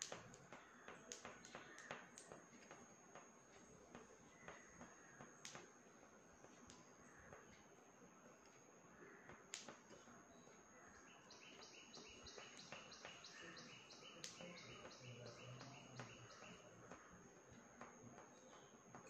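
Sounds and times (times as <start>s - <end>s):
faint chirping call: 10.0s - 17.1s.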